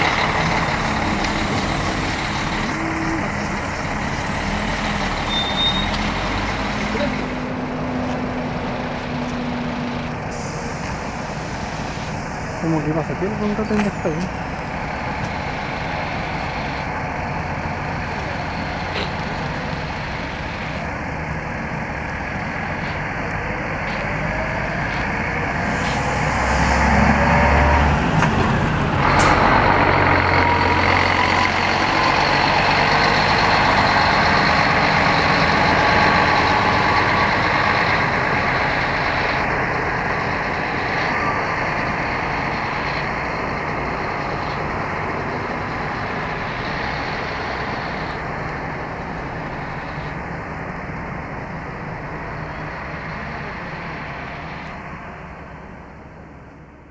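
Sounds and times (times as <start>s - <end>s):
diesel coach engine accelerating: 0.0s - 56.9s
air brake burst: 10.3s - 12.6s.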